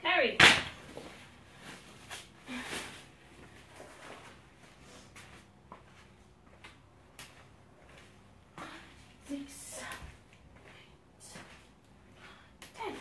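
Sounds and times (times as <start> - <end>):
soft footsteps on gym floor: 3.3 - 13.0.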